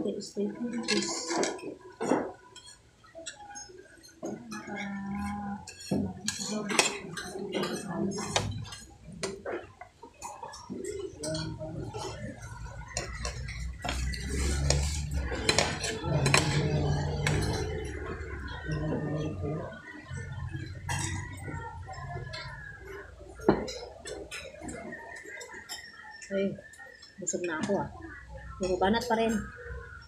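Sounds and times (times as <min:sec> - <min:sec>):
cutlery clinking on metal plate: 0:00.7 - 0:18.0.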